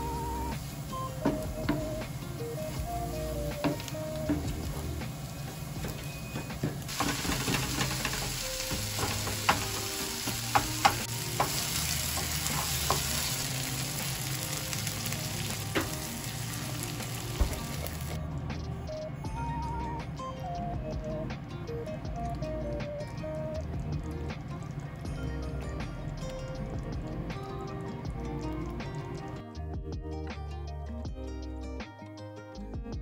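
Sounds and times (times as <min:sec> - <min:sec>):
meat sizzling in a frying pan: 0:00.0 - 0:18.2
water pouring: 0:06.9 - 0:18.2
spatula clicking against pan: 0:07.0 - 0:13.2.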